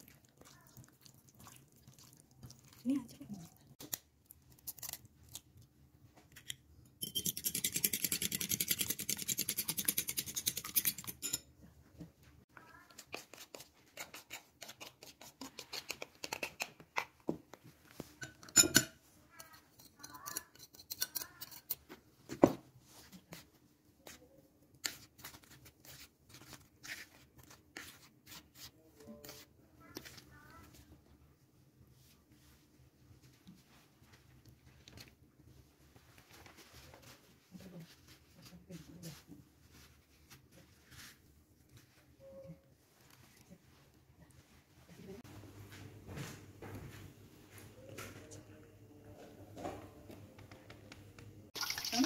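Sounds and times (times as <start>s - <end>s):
spoon stirring flour: 6.3s - 11.5s, 12.5s - 21.9s, 22.9s - 30.9s.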